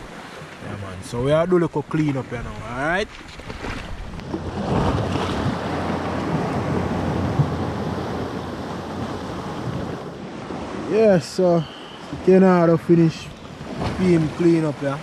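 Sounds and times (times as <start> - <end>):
water washing against seawall: 0.0 - 15.0
wind on microphone: 2.3 - 10.9.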